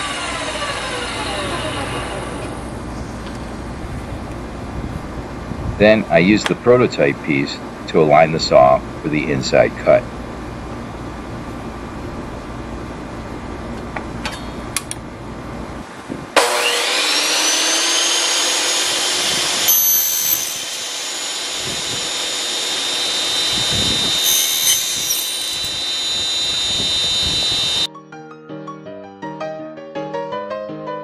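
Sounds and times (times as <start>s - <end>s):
saw cutting aluminum: 0.0s - 2.7s, 16.4s - 27.9s
table saw motor whine: 0.0s - 3.6s, 16.4s - 27.9s.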